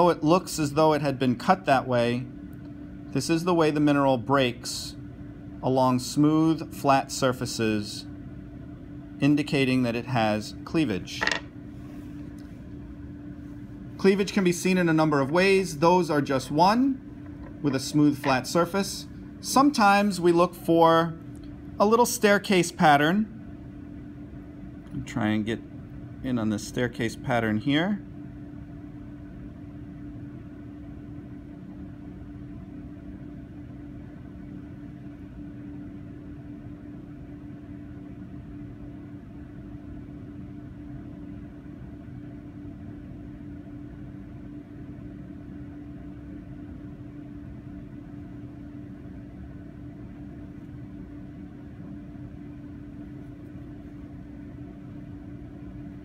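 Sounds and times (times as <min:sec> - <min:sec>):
low background hum: 0:00.0 - 0:56.0.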